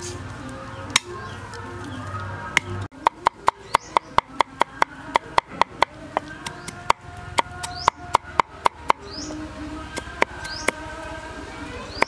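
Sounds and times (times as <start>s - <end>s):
cleaver chopping on wooden block: 3.0s - 9.0s.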